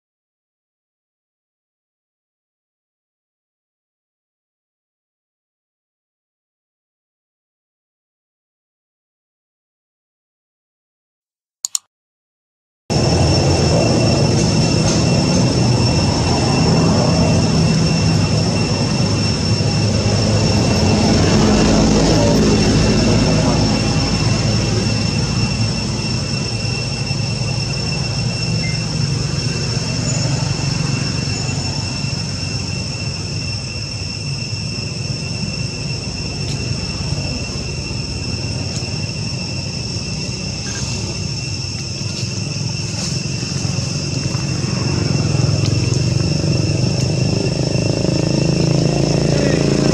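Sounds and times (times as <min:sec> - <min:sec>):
high-pitched whine: 0:12.9 - 0:49.9
low engine rumble: 0:12.9 - 0:49.9.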